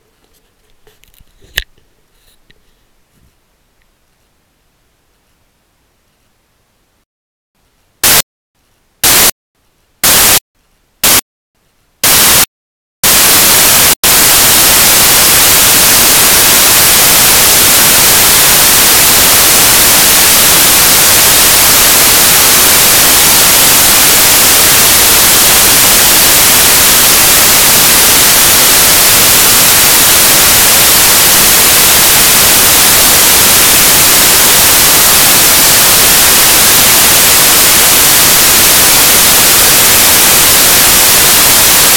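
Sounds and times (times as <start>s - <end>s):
loud electronic static hiss: 8.0s - 8.2s, 9.0s - 9.3s, 10.0s - 10.4s, 11.0s - 11.2s, 12.0s - 41.9s.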